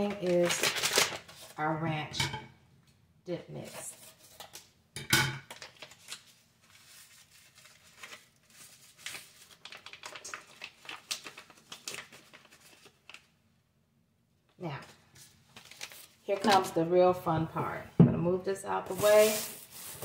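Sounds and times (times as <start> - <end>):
packet crinkling: 0.0 - 1.6, 5.5 - 13.3, 15.5 - 16.8.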